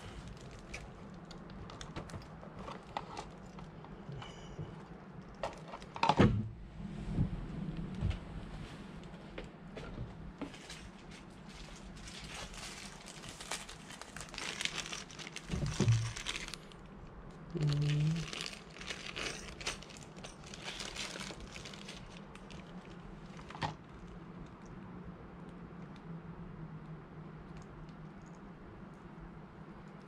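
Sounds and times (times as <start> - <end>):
plastic bag crinkling: 0.0 - 3.8, 10.6 - 17.0, 17.6 - 24.1.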